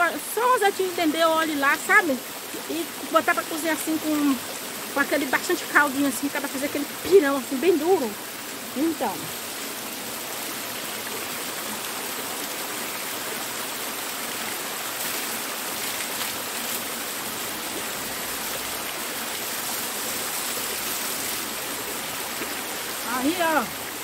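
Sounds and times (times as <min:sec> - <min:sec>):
water splashing from pipe spout: 0:00.0 - 0:24.0
waterfall rushing over rocks: 0:00.0 - 0:24.0.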